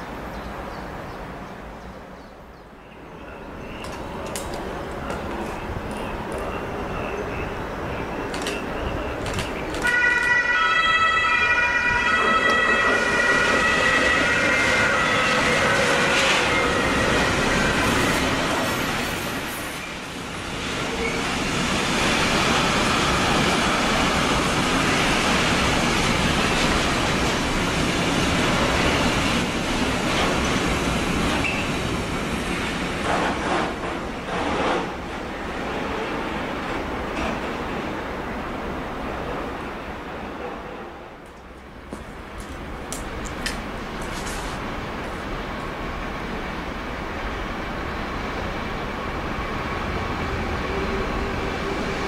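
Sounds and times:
freight train rolling clatter: 3.4 - 52.0
locomotive multi-tone horn: 9.8 - 18.4.

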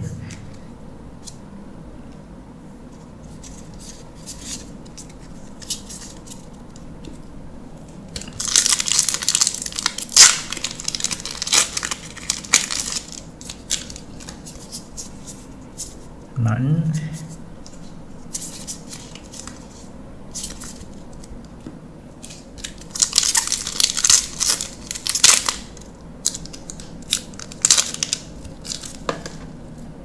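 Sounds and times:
plastic wrapper tearing and crinkling: 8.2 - 14.9, 22.2 - 29.4.

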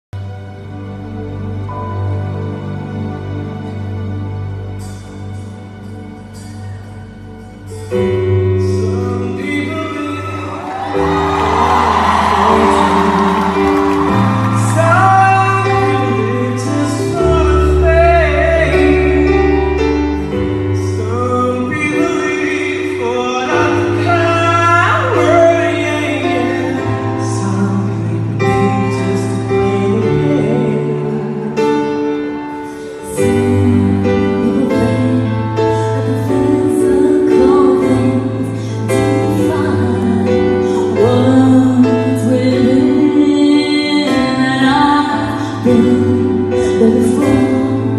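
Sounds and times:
keyboard: 0.1 - 47.9
man singing: 8.6 - 47.9
woman singing: 33.0 - 47.9.

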